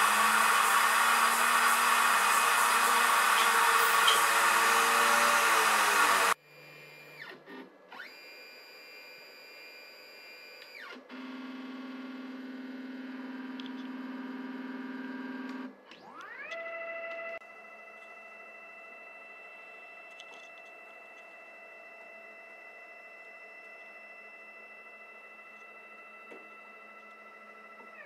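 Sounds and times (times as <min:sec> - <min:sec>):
stepper motors whining: 0:00.0 - 0:06.4.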